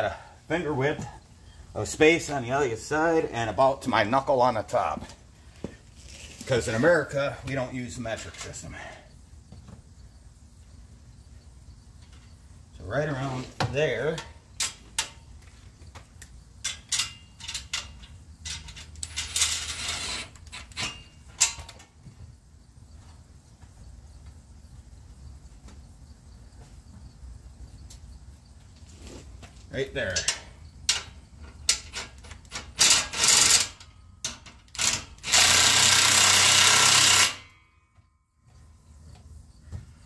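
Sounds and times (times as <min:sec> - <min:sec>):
metal clinks and knocks: 0:16.5 - 0:21.9
metal scraping on metal: 0:16.7 - 0:21.7.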